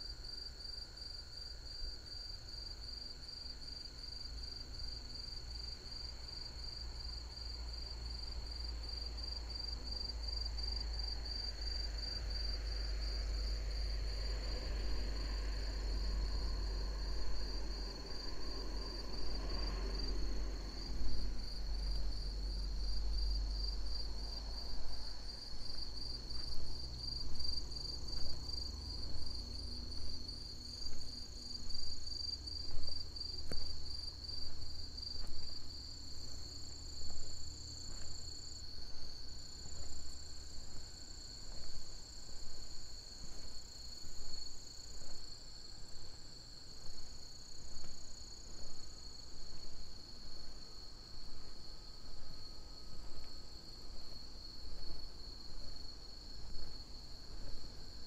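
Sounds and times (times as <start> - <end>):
crickets chirping: 0.0 - 58.0
footsteps on path: 25.6 - 45.4.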